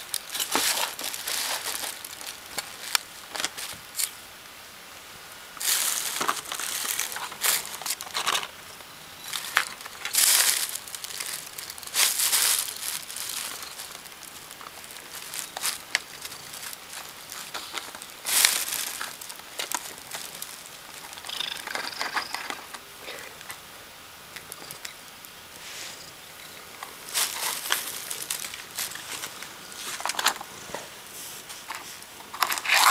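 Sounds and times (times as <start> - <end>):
plastic bags and cardboard crinkling: 0.0 - 4.2, 5.6 - 23.7, 24.3 - 32.9.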